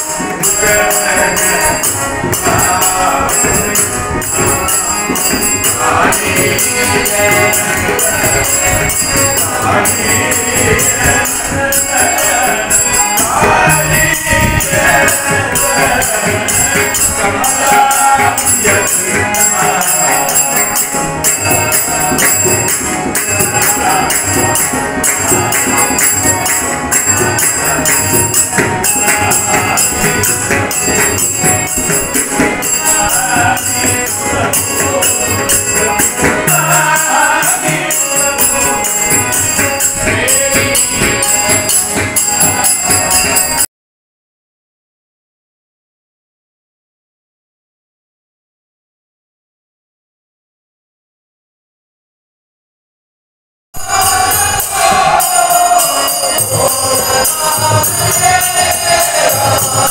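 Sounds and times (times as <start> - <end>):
group singing devotional song: 0.0 - 43.7, 53.8 - 59.9
hand drum: 0.0 - 43.7
metallic jingling percussion: 0.0 - 43.7, 53.8 - 59.9.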